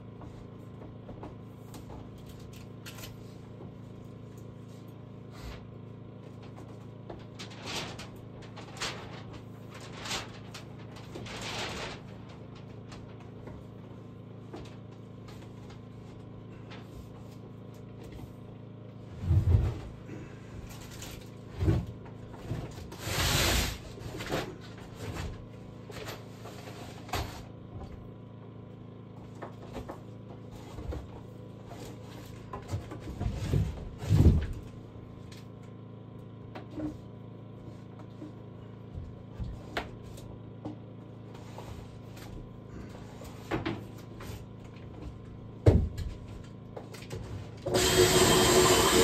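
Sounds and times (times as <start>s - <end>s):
steady low hum: 0.0s - 49.0s
knocks and thuds: 45.6s - 46.1s.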